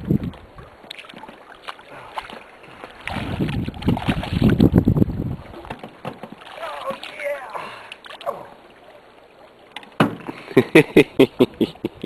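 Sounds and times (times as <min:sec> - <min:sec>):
fish thrashing and splashing: 0:00.9 - 0:04.8, 0:05.5 - 0:08.6.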